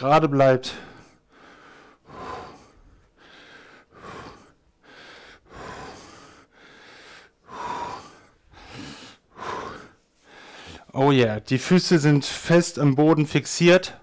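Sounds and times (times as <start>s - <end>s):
man breathing hard: 0.6s - 11.0s.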